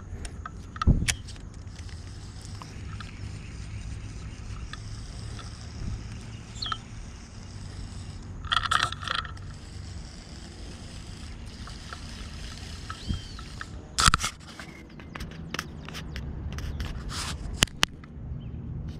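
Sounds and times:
fishing reel clicks and knocks: 0.0 - 15.7
wind on microphone: 0.7 - 8.1.

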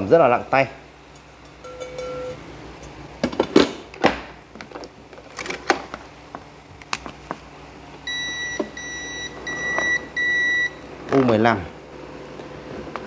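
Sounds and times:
rice cooker high beeps: 1.6 - 2.4, 8.1 - 10.8.

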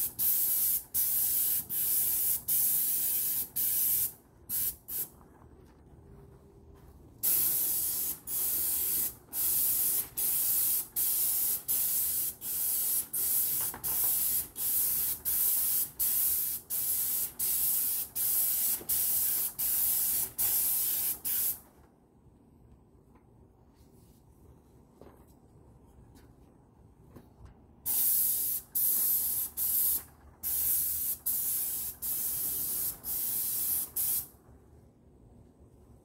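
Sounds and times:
paint spray gun hissing: 7.2 - 21.6, 27.9 - 34.3.

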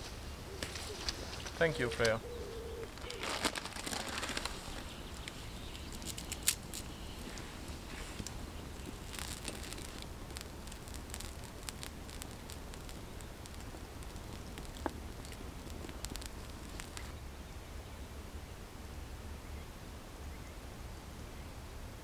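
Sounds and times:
campfire crackling and popping: 0.0 - 2.2, 2.8 - 17.6.

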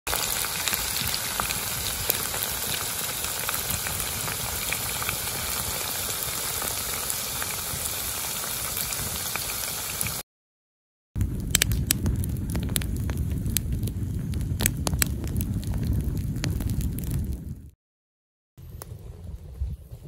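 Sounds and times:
chicken deep-frying in oil: 0.1 - 10.2.

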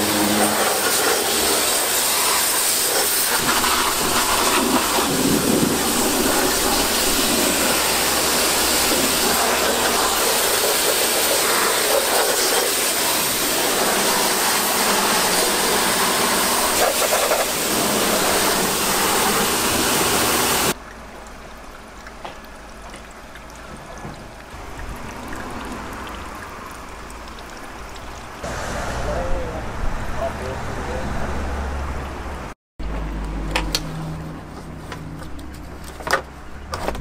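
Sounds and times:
pressure washer spraying: 0.0 - 20.8.

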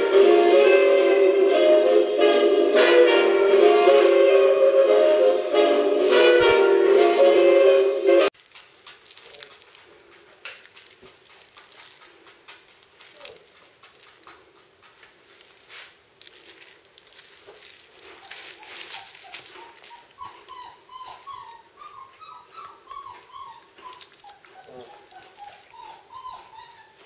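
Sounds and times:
claws clicking on tiled floor: 8.3 - 21.6, 23.1 - 27.0
puppy squeaks: 18.0 - 27.0.

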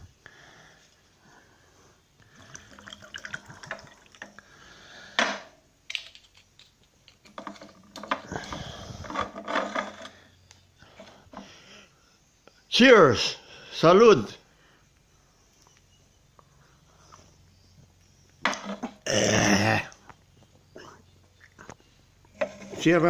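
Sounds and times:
drink pouring into a glass: 2.3 - 4.4.

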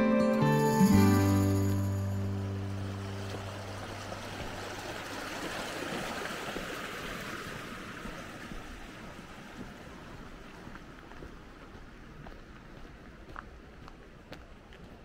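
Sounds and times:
flowing water rushing: 1.3 - 12.2.

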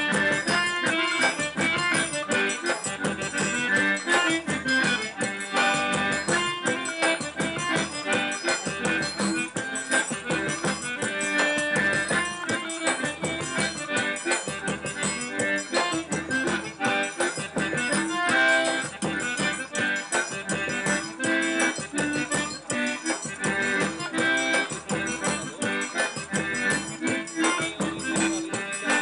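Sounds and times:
button accordion dance tune: 0.0 - 29.0
drum beat: 0.0 - 29.0.

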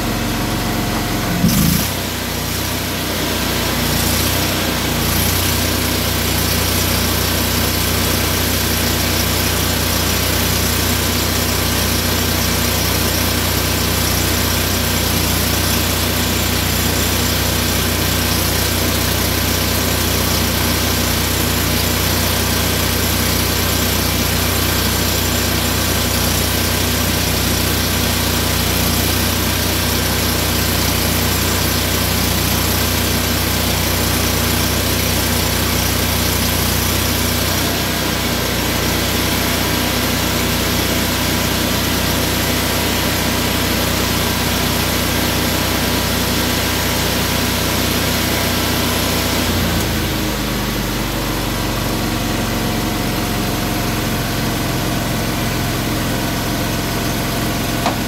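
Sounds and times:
engine idling: 0.0 - 58.0.

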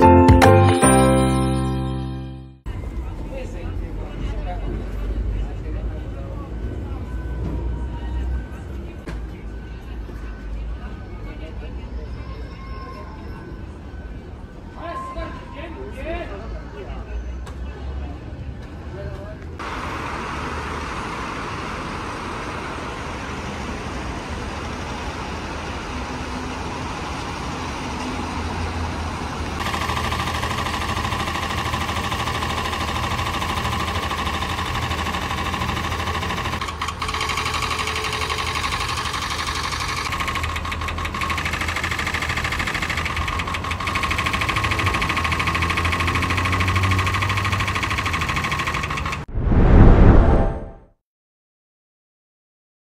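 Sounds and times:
road traffic rumble: 16.8 - 29.6.

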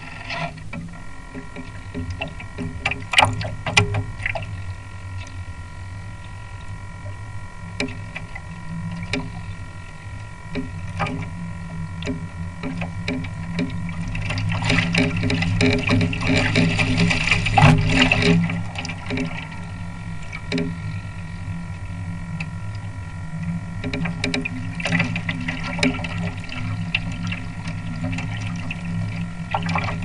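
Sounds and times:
steady high whine: 0.0 - 30.0
water rushing along hull: 0.0 - 30.0.

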